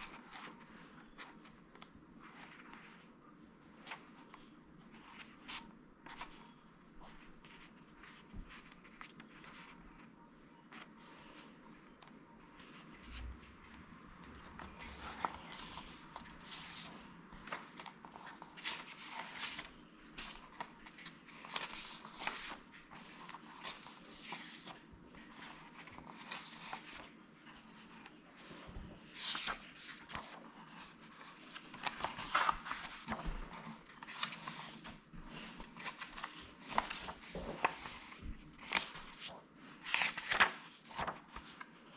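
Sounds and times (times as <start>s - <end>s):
book pages being flipped: 0.0s - 41.9s.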